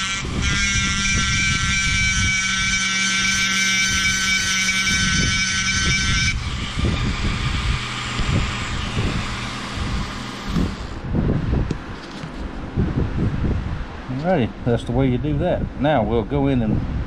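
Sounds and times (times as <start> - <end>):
rotary tool whining: 0.0 - 11.1
shop fan rumble: 0.0 - 17.0.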